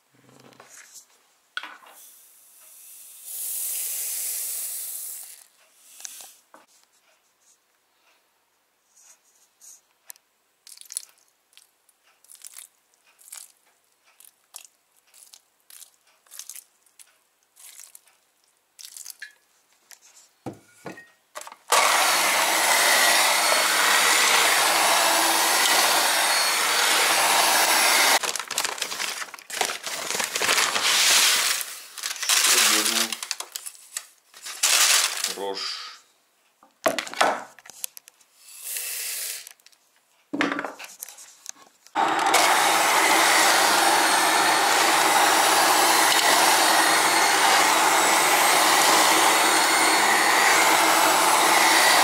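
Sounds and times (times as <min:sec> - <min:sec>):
electric hand mixer beating dough: 0:21.7 - 0:28.4, 0:30.0 - 0:31.8, 0:42.0 - 0:52.0.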